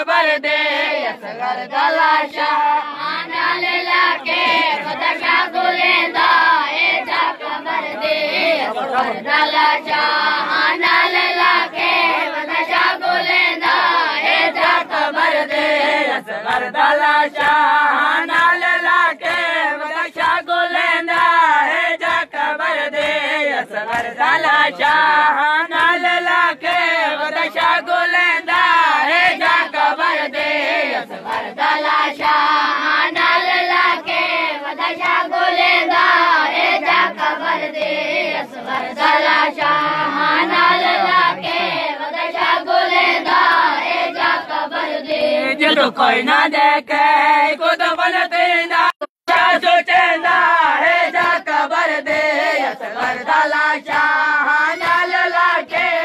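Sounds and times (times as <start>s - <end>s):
boys chanting in unison: 0.0s - 56.0s
hand slaps on chest: 23.8s - 25.1s, 52.0s - 56.0s.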